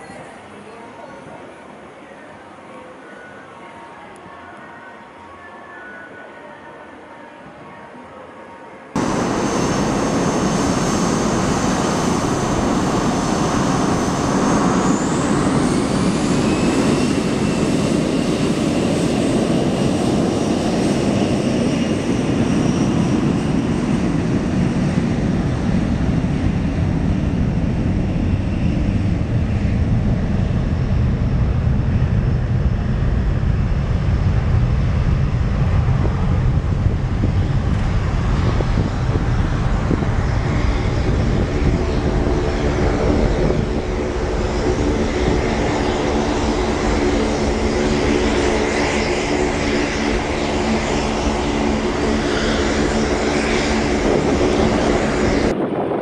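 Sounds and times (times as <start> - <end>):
jet engines spooling up: 9.0 - 56.0.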